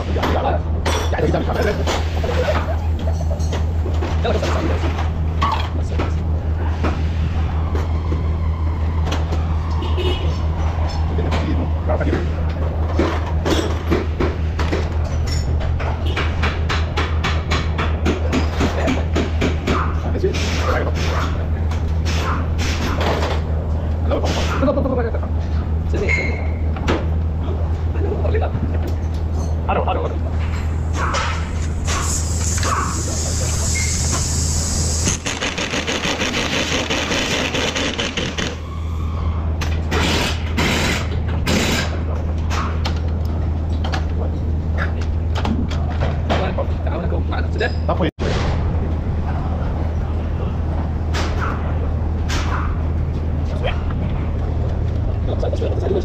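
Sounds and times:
pneumatic impact wrench: 0:19.6 - 0:21.4, 0:22.0 - 0:23.4, 0:30.5 - 0:38.6, 0:39.9 - 0:42.7
short bursts of noise: 0:31.0 - 0:38.6
rapid sharp clicks: 0:35.0 - 0:38.6.

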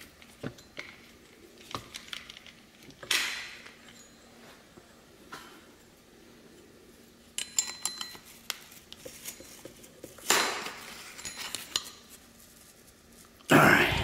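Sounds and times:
metal spanner clinks and clicks: 0:07.4 - 0:08.3.

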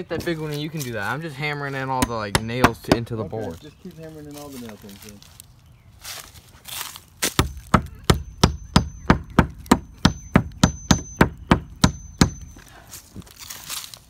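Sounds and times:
hammer striking nails into wood: 0:02.0 - 0:03.2, 0:07.4 - 0:12.6.

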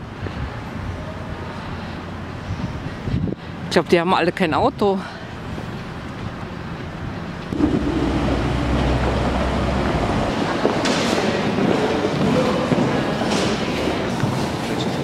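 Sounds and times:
wind on microphone: 0:02.4 - 0:03.5, 0:07.5 - 0:12.8
vehicle engine rumble passing: 0:07.5 - 0:12.0.

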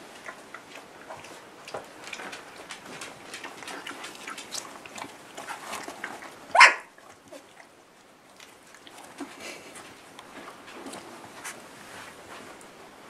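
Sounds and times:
small clicks and rustling: 0:01.7 - 0:06.2
dog barking: 0:06.5 - 0:06.9.

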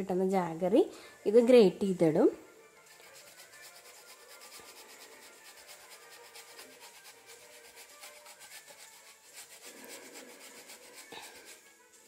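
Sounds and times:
grater rasping: 0:02.9 - 0:11.8.

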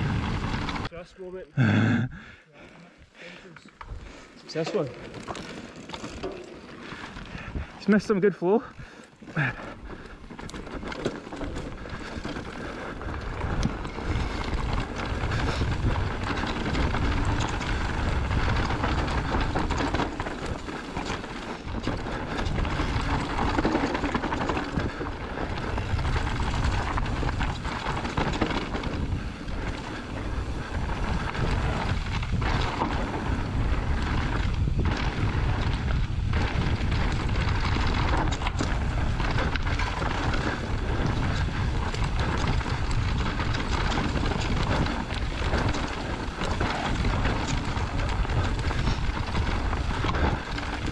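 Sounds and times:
wind on microphone: 0:00.0 - 0:00.9, 0:11.6 - 0:50.9
tyres rolling over stones: 0:03.7 - 0:50.9
bike knocks and rattles: 0:04.5 - 0:07.3, 0:09.2 - 0:50.9.

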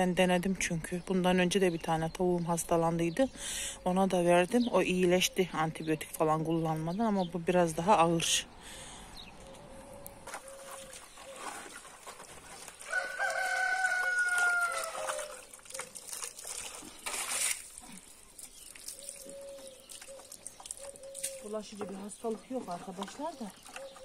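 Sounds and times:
water splash: 0:10.4 - 0:21.6
hose running water into dish: 0:11.3 - 0:24.0
rooster crowing: 0:12.8 - 0:15.4.

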